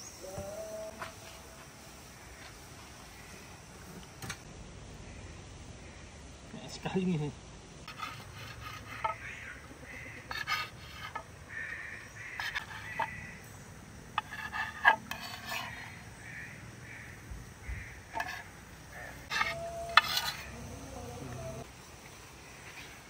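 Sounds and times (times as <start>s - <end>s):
utensil scraping and knocking in pot: 7.9s - 9.4s, 10.0s - 13.2s, 14.1s - 16.0s, 18.1s - 18.5s, 19.2s - 20.7s.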